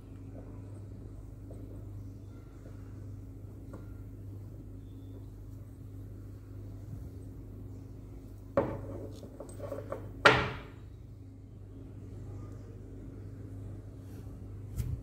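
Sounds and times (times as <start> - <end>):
faint low hum: 0.0 - 15.0
stone cast knocking on wooden table: 8.6 - 10.7.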